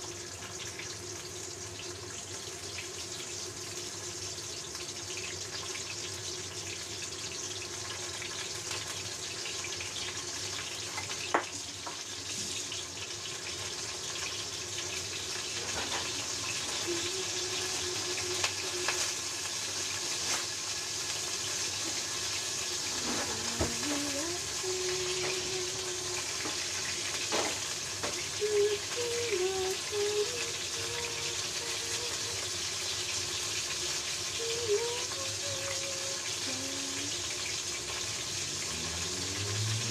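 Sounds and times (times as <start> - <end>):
fish sizzling in oil: 0.0 - 39.9.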